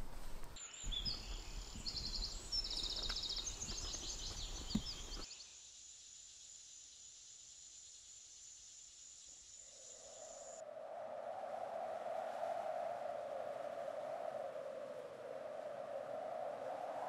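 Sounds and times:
birds trilling and chirping: 0:00.0 - 0:05.3.

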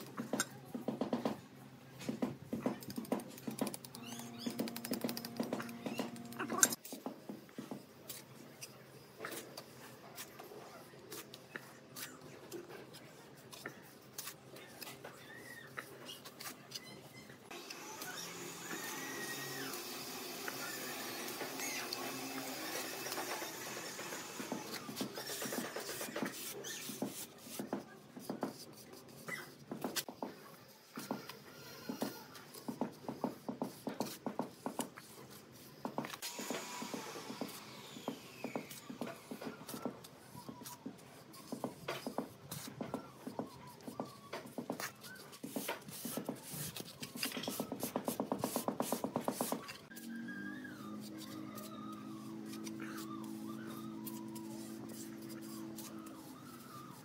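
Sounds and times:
short pitched squeaks: 0:04.0 - 0:05.0.

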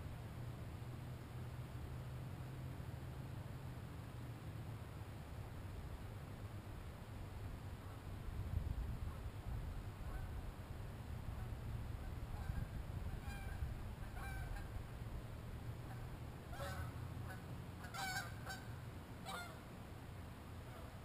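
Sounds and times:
steady low rumble: 0:00.0 - 0:21.0
distant birds calling: 0:15.8 - 0:19.7.

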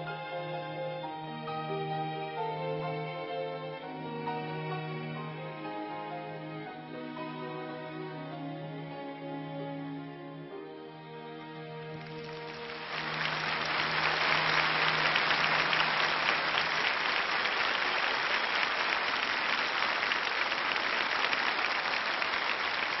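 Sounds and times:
audience applauding: 0:12.0 - 0:23.0.

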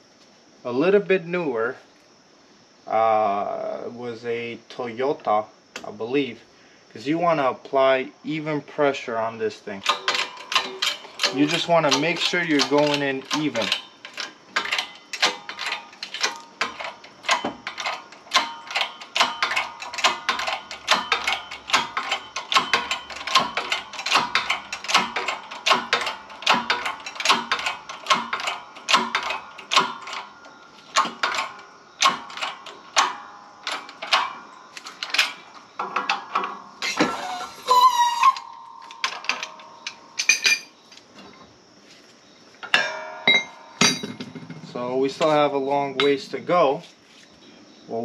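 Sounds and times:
hand ratchet clicking: 0:09.8 - 0:35.4.

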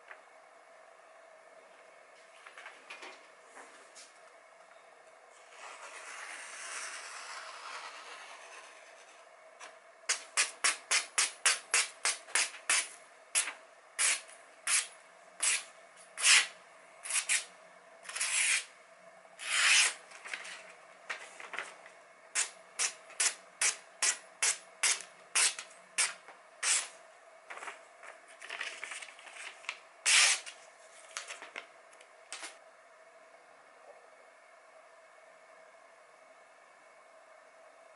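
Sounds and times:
faint steady hum: 0:00.0 - 0:37.9
knife slicing paper: 0:19.4 - 0:20.4, 0:24.0 - 0:26.9, 0:28.7 - 0:30.6.

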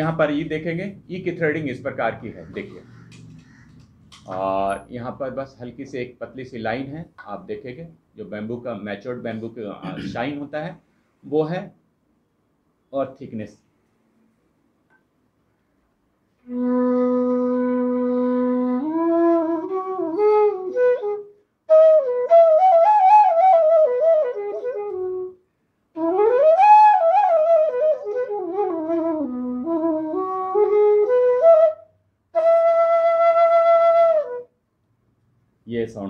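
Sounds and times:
bass flute melody: 0:16.4 - 0:34.6.

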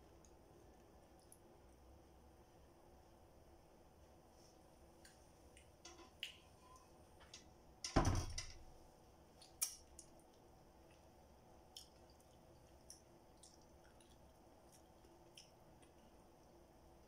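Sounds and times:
mouth clicks and lip smacks: 0:11.7 - 0:16.1.

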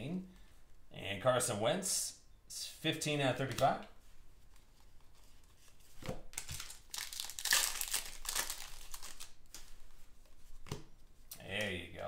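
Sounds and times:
wrapper crinkling: 0:06.3 - 0:09.7.

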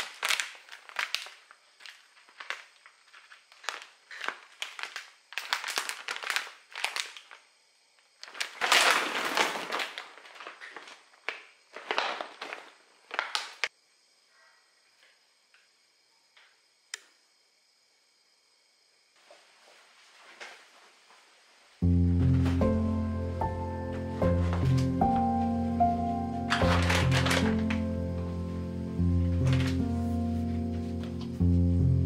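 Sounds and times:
plastic snack bags crinkling: 0:00.0 - 0:13.7, 0:26.5 - 0:28.0, 0:29.4 - 0:29.9.

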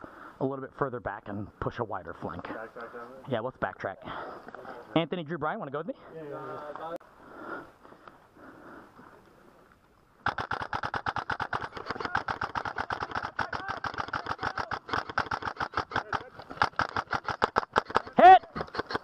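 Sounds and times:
airsoft guns firing in bursts: 0:10.2 - 0:19.0.

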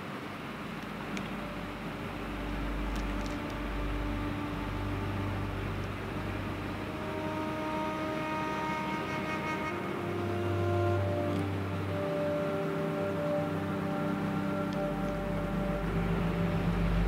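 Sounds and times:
bowed-string music: 0:00.0 - 0:17.0
low mechanical rumble with hiss: 0:00.0 - 0:17.0.

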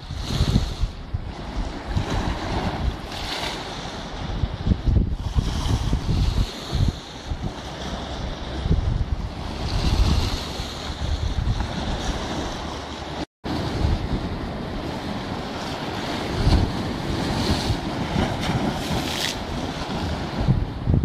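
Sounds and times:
choppy sea rushing: 0:00.0 - 0:21.0
wind buffeting microphone: 0:00.0 - 0:21.0
waves splashing against stone: 0:05.4 - 0:20.5.

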